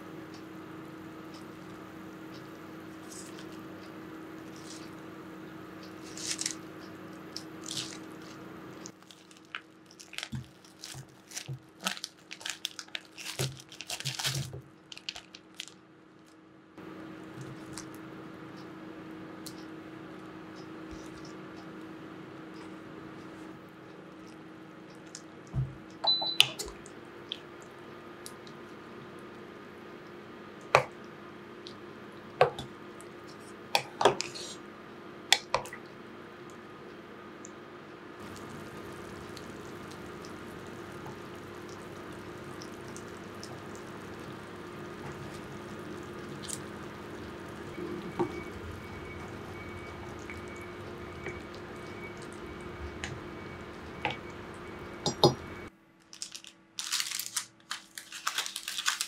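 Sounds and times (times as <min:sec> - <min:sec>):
steady low hum: 0:00.0 - 0:13.7, 0:16.5 - 0:55.9
faint water sound: 0:38.2 - 0:55.0.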